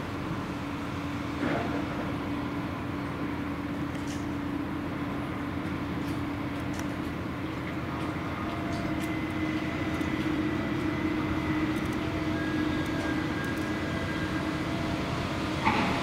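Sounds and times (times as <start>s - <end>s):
diesel machinery drone: 0.0s - 16.0s.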